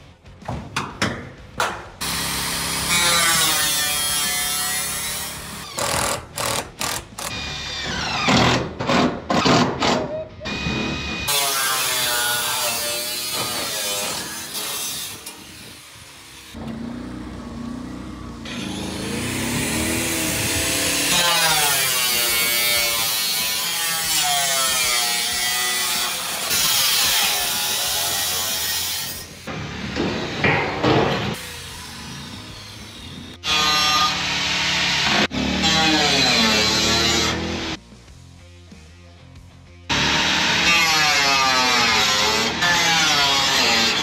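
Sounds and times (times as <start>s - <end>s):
angle grinder cutting sheet metal: 2.0s - 16.6s, 18.4s - 37.8s, 39.9s - 44.0s.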